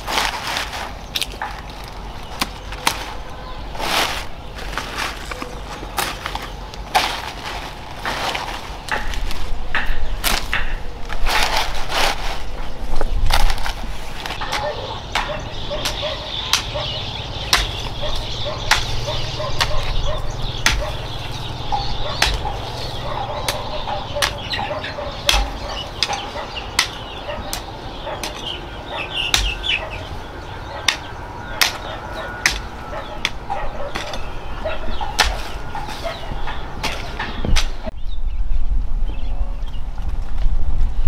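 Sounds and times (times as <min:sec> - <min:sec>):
sharp knocks: 0:08.9 - 0:10.9, 0:20.6 - 0:28.5
chickens clucking: 0:14.3 - 0:37.9.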